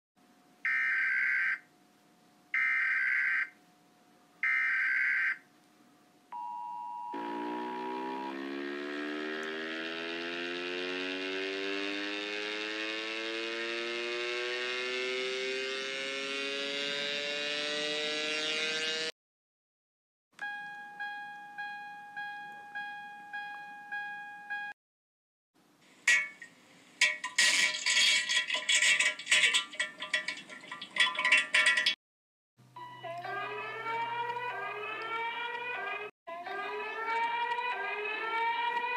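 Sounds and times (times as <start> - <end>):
steady two-tone attention signal: 6.4 - 8.8
dense chord rising in pitch: 7.2 - 19.0.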